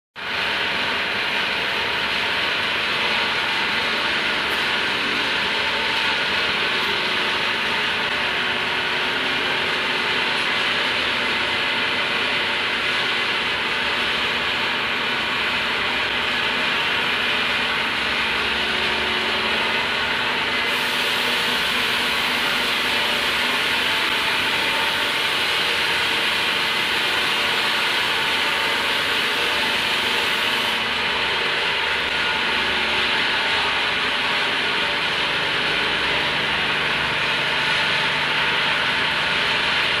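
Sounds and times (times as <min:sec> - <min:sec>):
hissing machine drone: 0:17.1 - 0:37.2.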